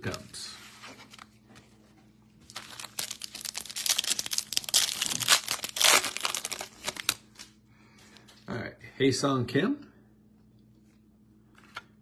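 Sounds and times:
foil wrapper crinkling: 2.4 - 7.5.

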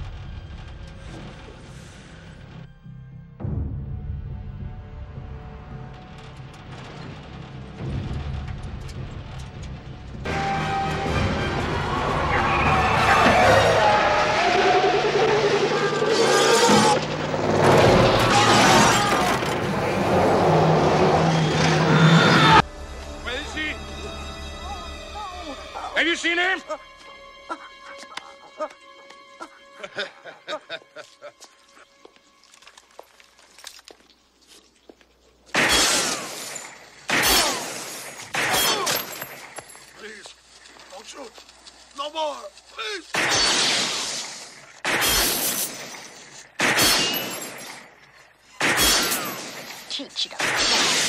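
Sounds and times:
loud film music: 0.0 - 32.6
crashing: 15.4 - 22.0
glass breaking: 35.6 - 40.0, 43.2 - 48.0, 48.6 - 51.0
glass shattering: 35.6 - 40.0, 43.2 - 48.0, 48.6 - 51.0.

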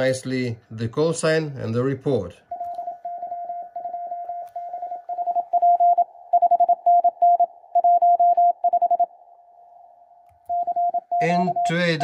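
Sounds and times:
morse code beeps: 2.5 - 9.1, 10.5 - 12.0.

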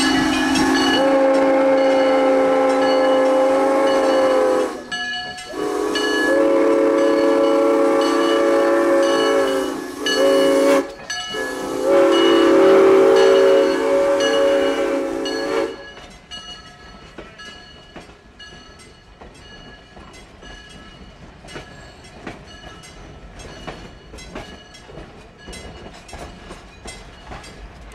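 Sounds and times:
steam locomotive whistle: 0.0 - 16.0
steam hissing: 0.0 - 16.2
train wheels clicking over rail joints: 0.0 - 27.9.

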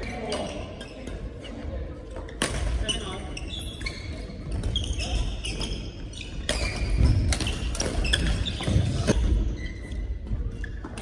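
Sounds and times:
shoes squeaking on wooden floor: 2.8 - 11.0.

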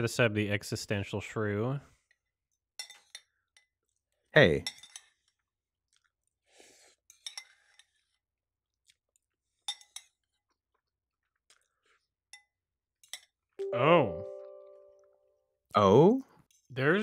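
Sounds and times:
faint chewing: 5.0 - 12.6.

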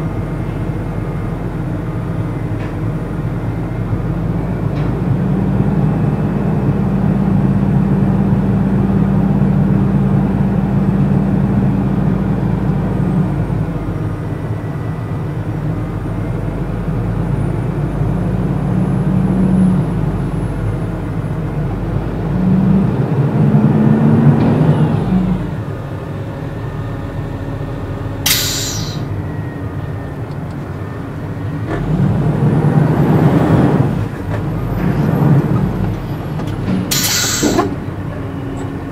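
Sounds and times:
air hiss: 28.3 - 29.1, 36.9 - 37.8.

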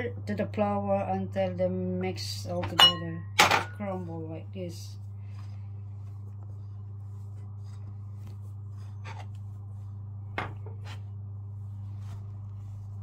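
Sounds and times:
steady low hum: 0.0 - 13.0
hands rubbing butter into flour: 5.9 - 10.1.

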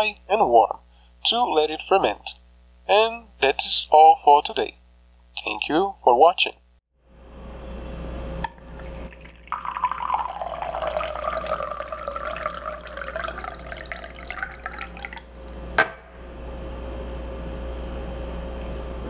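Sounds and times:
water pouring into a glass: 8.5 - 15.6.

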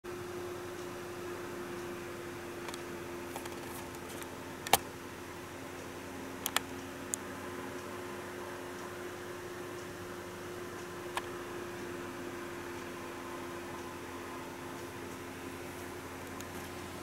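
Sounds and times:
low room hum: 0.1 - 17.0
sharp clicks: 6.4 - 7.2.

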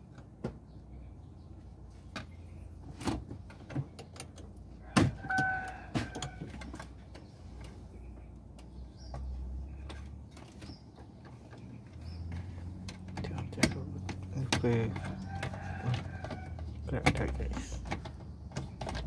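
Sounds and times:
plastic trim clicking and knocking: 11.2 - 19.0.

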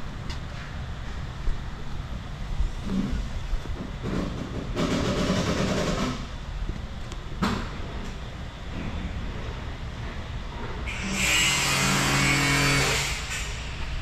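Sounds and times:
steady low rumble: 0.0 - 5.2
electric chop saw running: 10.9 - 13.5.

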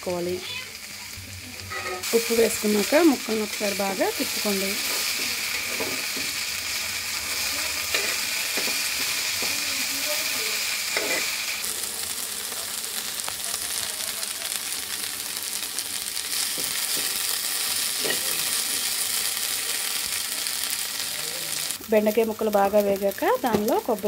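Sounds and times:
okra sizzling in hot oil: 0.0 - 24.0
spatula scraping and stirring: 4.1 - 6.4, 7.2 - 10.1, 10.9 - 11.4.

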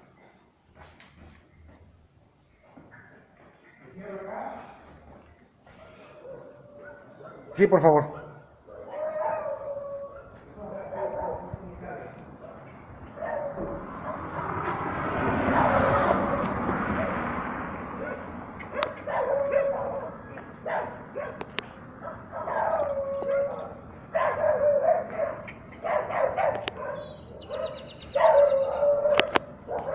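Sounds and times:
dog barking: 5.7 - 11.5, 13.1 - 14.8, 15.4 - 17.3, 17.9 - 29.9
rushing noise: 12.2 - 22.0.

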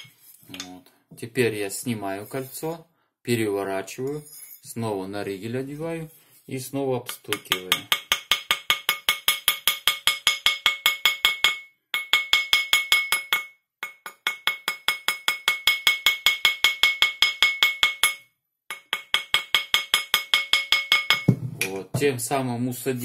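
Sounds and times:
wooden mallet tapping metal ring: 7.1 - 21.7.

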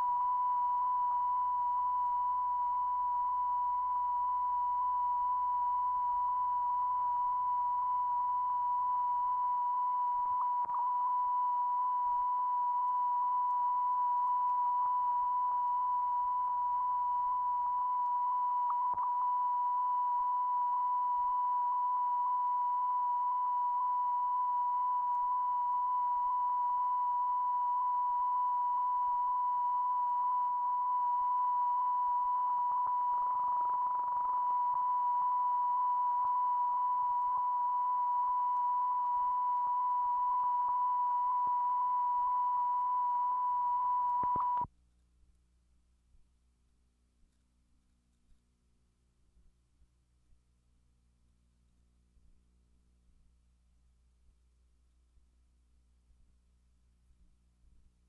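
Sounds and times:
electronic test tone: 0.0 - 44.7.

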